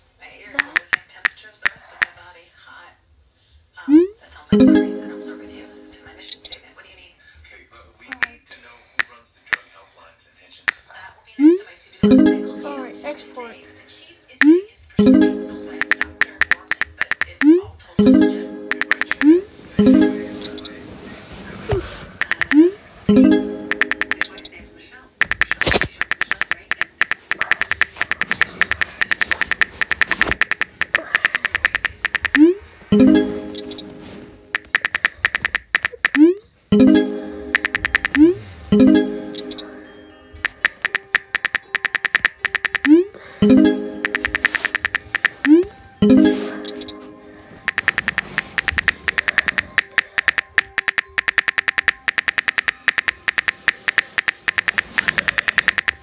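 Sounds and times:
phone keyboard clicks: 25.2s - 32.4s, 34.6s - 36.2s, 40.4s - 43.0s, 44.0s - 45.6s, 47.7s - 56.0s
on-screen keyboard key clicks: 47.7s - 56.0s.

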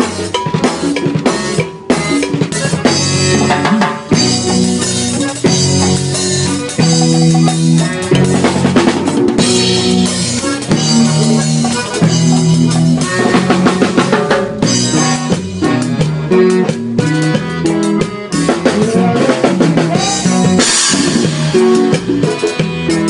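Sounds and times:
bass notes: 0.0s - 23.0s
button accordion: 0.0s - 23.0s
drum kit beat: 0.0s - 23.0s
guitar: 0.0s - 23.0s
live band playing: 0.0s - 23.0s.

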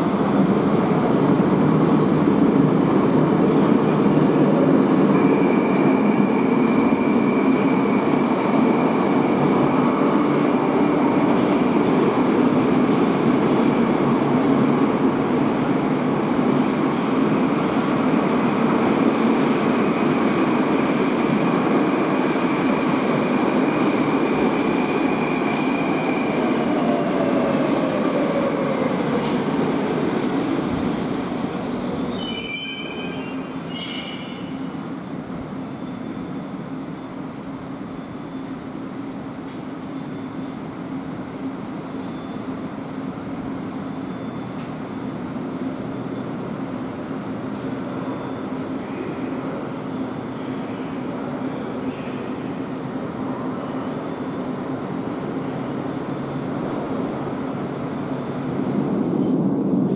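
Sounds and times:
train wheels rumbling on rails: 0.0s - 34.9s, 56.6s - 59.9s
thin steady whine: 34.2s - 59.9s
faint falling whine: 34.3s - 59.9s.

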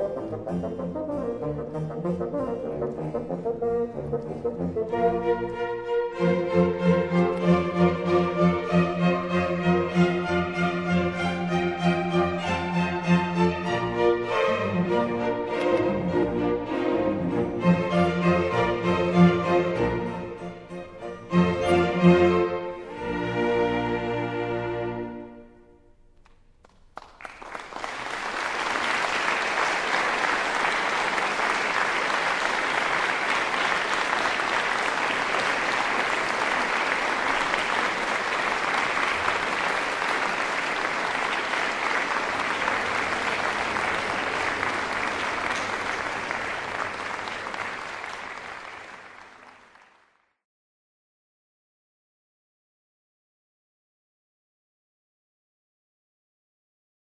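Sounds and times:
audience applauding: 26.2s - 50.3s.

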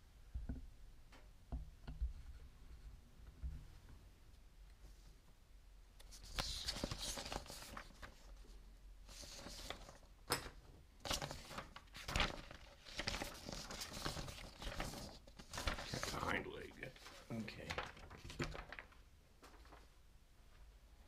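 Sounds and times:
paper rustling: 6.0s - 19.9s.

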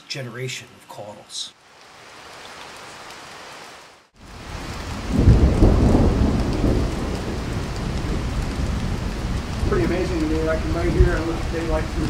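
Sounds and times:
steady rain: 0.0s - 12.0s
thunder rumbling: 4.2s - 12.0s.

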